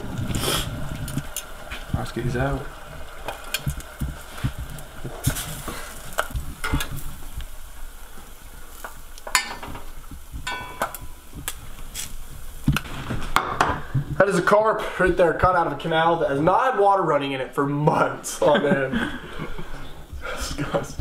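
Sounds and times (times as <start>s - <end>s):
oil sizzling in a pot: 0.0s - 14.5s
metal spoon clinking on pot: 9.3s - 9.7s, 10.4s - 11.2s.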